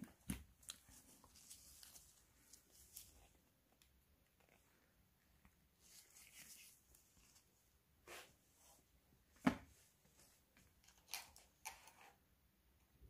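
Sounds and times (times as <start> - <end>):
gloved hands rustling: 0.2 - 8.4.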